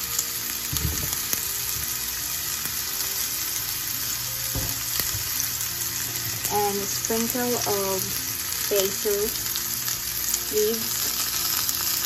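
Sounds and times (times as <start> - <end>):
mushrooms sizzling in frying pan: 0.0 - 12.0
soft knocks in pan: 4.5 - 5.3.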